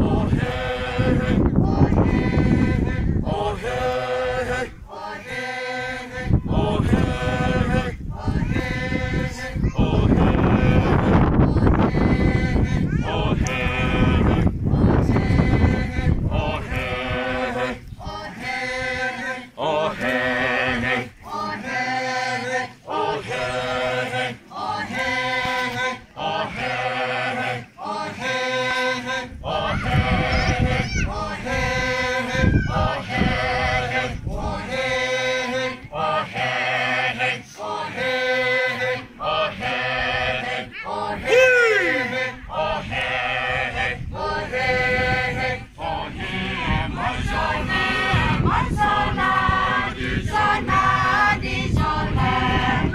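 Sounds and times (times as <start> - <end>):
group chanting in unison: 0.0 - 52.9
high sliding voice call: 40.7 - 42.2.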